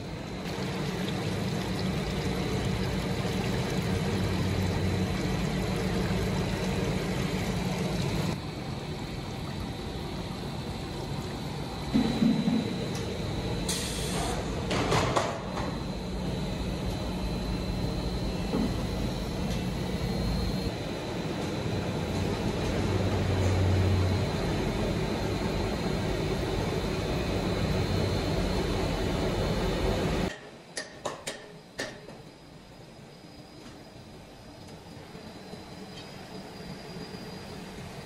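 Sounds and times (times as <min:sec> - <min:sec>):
factory machinery running: 0:04.3 - 0:30.4.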